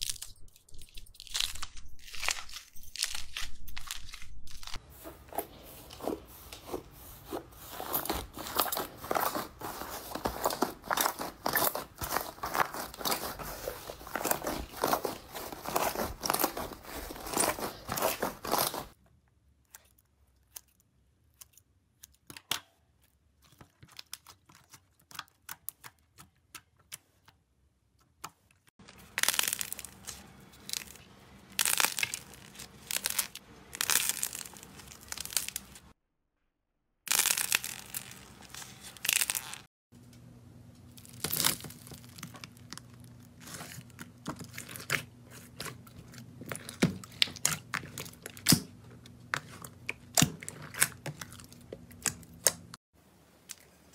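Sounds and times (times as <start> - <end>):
slime crackling and popping: 29.0 - 35.8, 37.1 - 39.7.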